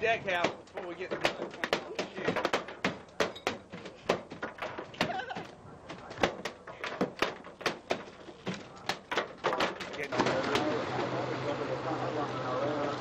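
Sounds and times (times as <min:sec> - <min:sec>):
knocks and thuds on boat deck: 0:00.1 - 0:10.1.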